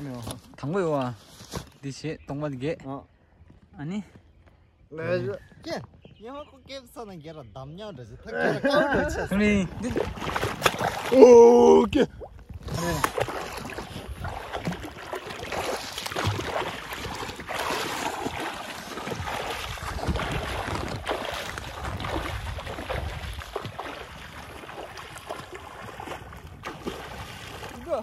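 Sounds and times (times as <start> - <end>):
wind on microphone: 8.7 - 28.0
water splashing and sloshing: 9.0 - 28.0.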